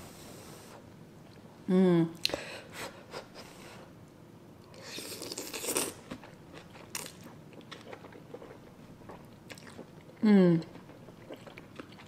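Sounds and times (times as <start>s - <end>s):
soft chewing: 4.6s - 12.0s.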